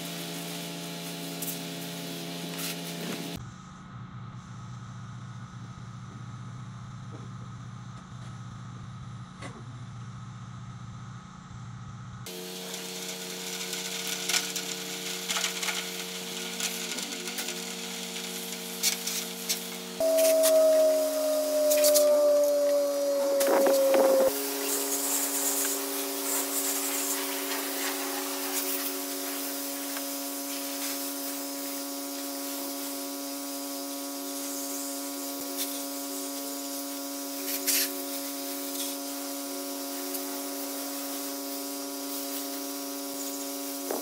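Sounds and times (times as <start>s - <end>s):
pressure washer mechanical hum: 12.3s - 39.0s
water spray hissing: 20.1s - 31.8s.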